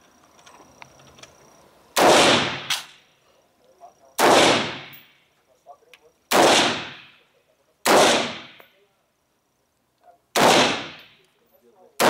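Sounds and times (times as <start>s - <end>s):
gunshots: 2.0s - 3.0s, 4.2s - 5.0s, 6.3s - 7.2s, 7.8s - 8.6s, 10.3s - 11.2s.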